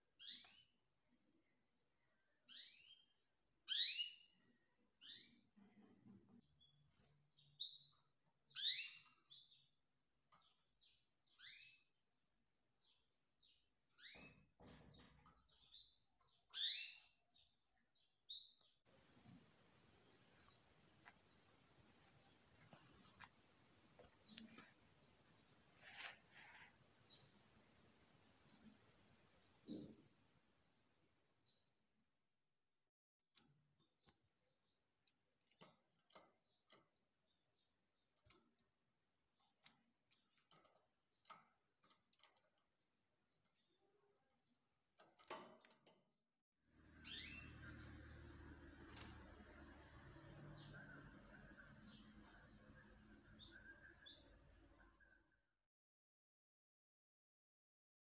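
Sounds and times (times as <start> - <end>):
canaries chirping: 0.1 - 0.7, 2.4 - 4.4, 5.0 - 5.6, 6.4 - 11.9, 12.8 - 30.0, 46.8 - 55.3
clicks and ticks from wire cage: 33.3 - 34.2, 35.0 - 37.4, 38.0 - 46.0.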